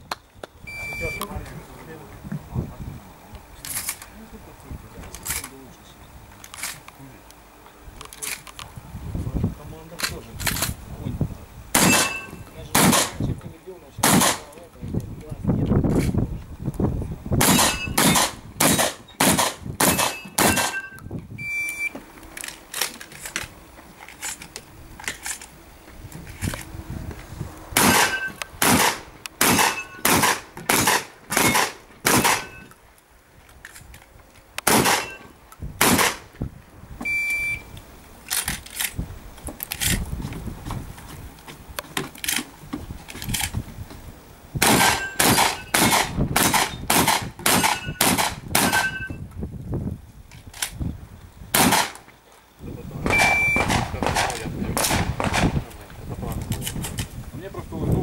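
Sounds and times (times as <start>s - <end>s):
high electronic beep: 0.7s - 1.3s, 11.8s - 12.5s, 17.6s - 18.0s, 19.9s - 22.0s, 27.9s - 28.4s, 29.7s - 30.0s, 32.2s - 32.7s, 35.0s - 35.3s, 37.1s - 37.7s, 45.0s - 45.8s, 48.7s - 49.2s, 53.1s - 53.7s
shotgun shots: 11.7s - 13.2s, 14.0s - 14.5s, 17.4s - 20.8s, 27.8s - 32.6s, 34.6s - 35.2s, 35.8s - 36.3s, 44.6s - 49.0s, 51.5s - 52.0s, 53.0s - 55.6s.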